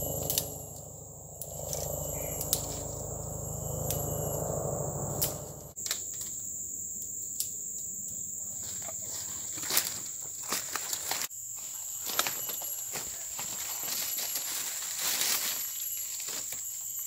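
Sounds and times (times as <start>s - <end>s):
high-pitched insect drone: 0.0s - 8.6s, 11.7s - 17.0s
footsteps in dry leaves: 9.0s - 17.0s.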